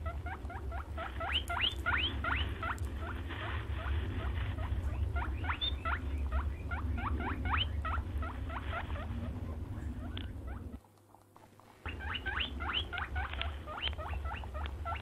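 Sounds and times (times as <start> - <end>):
low rumble: 0.0 - 10.8.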